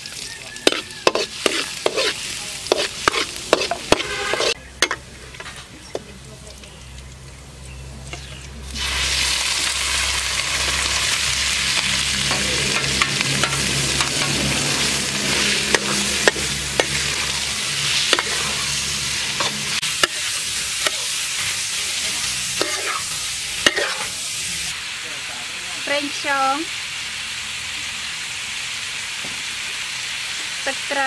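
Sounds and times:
liver sizzling in a wok: 0.0s - 31.0s
metal ladle scraping wok: 0.6s - 5.7s, 8.0s - 24.5s.

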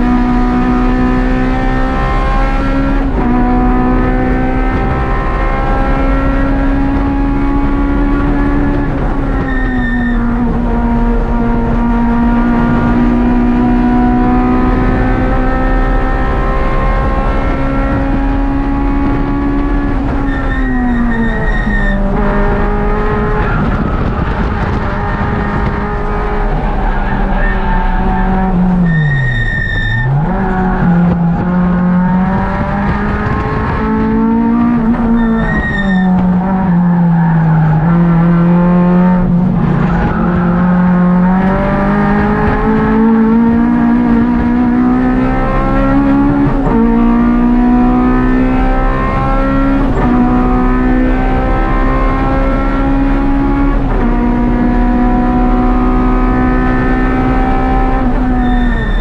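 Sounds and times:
race car engine revving: 0.0s - 59.0s
high squeals: 9.4s - 10.4s, 20.2s - 22.1s, 26.4s - 30.9s, 35.1s - 36.2s, 58.2s - 59.0s.

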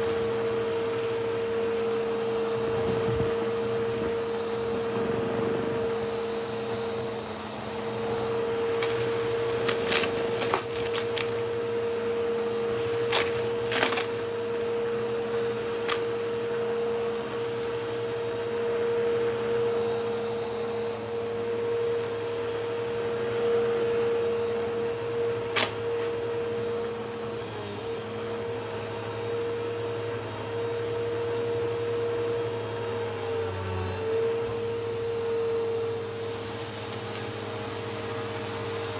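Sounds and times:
vacuum cleaner motor whine: 0.0s - 38.9s
debris rattling up vacuum nozzle: 8.6s - 14.6s, 15.6s - 16.5s, 25.5s - 26.0s.

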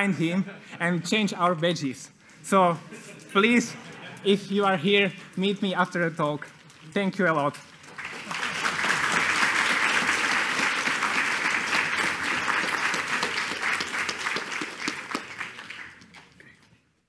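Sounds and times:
audience applauding: 7.5s - 16.6s.

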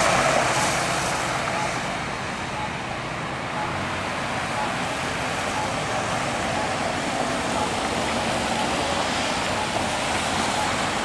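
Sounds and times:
car tyres hissing on wet road: 0.0s - 2.0s.

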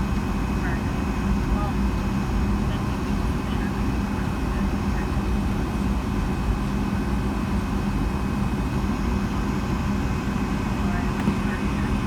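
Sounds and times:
aircraft cabin rush: 0.3s - 12.0s.

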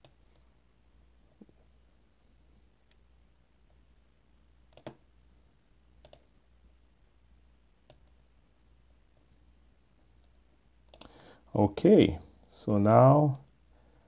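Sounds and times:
faint low hum: 0.0s - 14.0s
sharp clicks: 6.0s - 6.3s, 10.2s - 11.1s.

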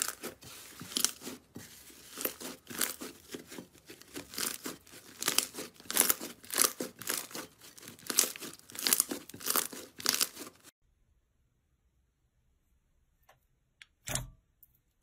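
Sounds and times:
slime squished by hand: 0.0s - 10.7s.

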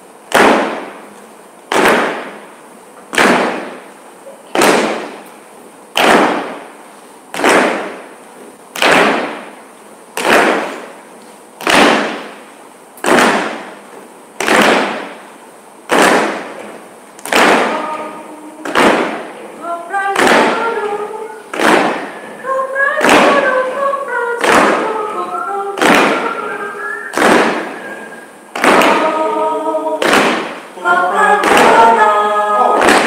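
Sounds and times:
stamping on wooden stage floor: 1.7s - 2.4s, 18.6s - 19.3s, 21.5s - 22.1s, 28.6s - 29.1s.

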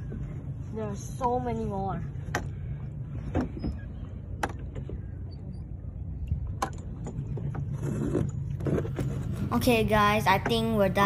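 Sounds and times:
wind and water rumble on microphone: 0.0s - 9.6s.

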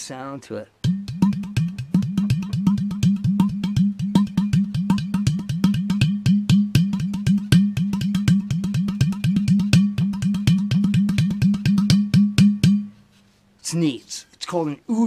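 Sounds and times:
clay-pot drum played by hand: 0.8s - 12.9s.

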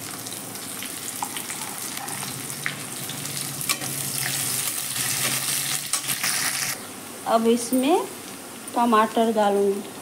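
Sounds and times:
vegetables sizzling in hot oil: 0.0s - 6.8s.

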